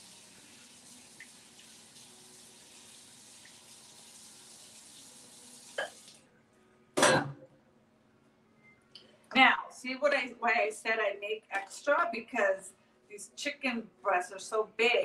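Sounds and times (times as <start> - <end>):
faucet running into sink: 0.0 - 6.2.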